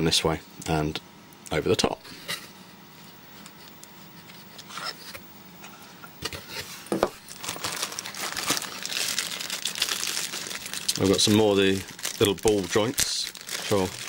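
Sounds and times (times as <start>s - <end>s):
plastic bags crinkling: 7.2s - 14.0s.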